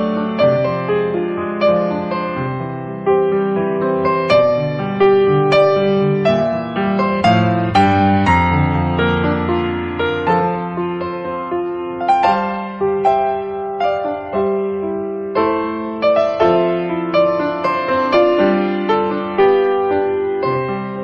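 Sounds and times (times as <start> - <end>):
soft piano music: 0.0 - 21.0.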